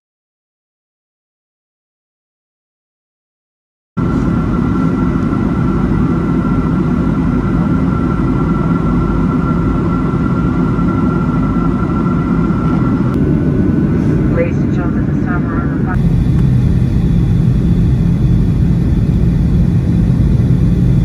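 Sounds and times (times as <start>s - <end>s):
jet engine rumble: 4.0s - 21.0s
rushing air: 12.9s - 14.5s.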